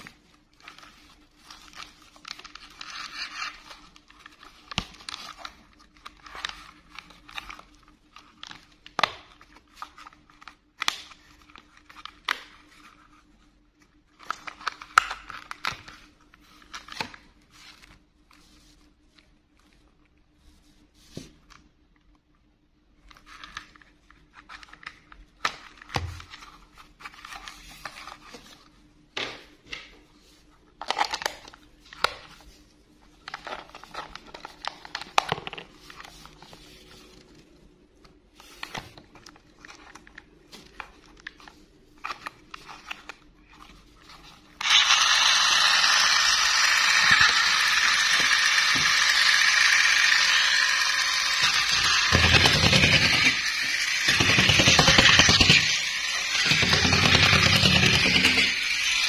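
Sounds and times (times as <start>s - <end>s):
plastic toy clicks and rattles: 44.6s - 59.0s.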